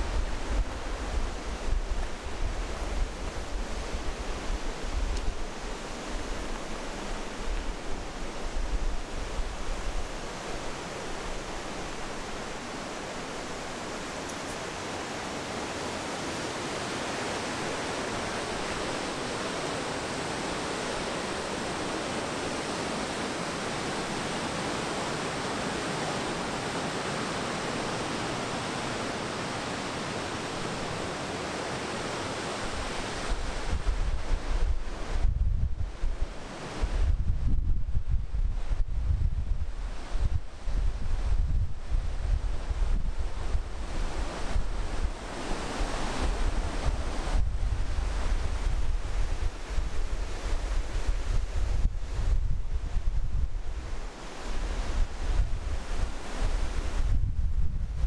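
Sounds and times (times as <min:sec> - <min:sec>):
wind buffeting microphone: 0:00.0 - 0:14.2, 0:32.7 - 0:58.0
river rushing over rocks: 0:00.0 - 0:35.2, 0:36.0 - 0:37.0, 0:42.0 - 0:51.6, 0:53.7 - 0:57.0.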